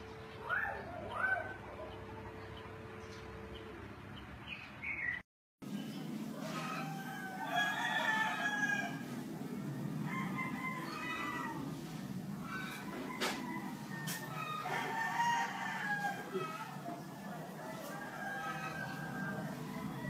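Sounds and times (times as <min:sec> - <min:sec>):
rooster crowing: 0:06.3 - 0:20.0.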